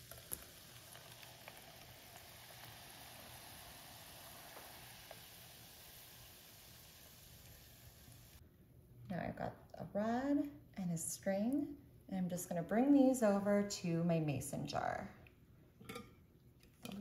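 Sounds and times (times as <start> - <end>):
wax bubbling and sizzling: 0.0 - 8.4.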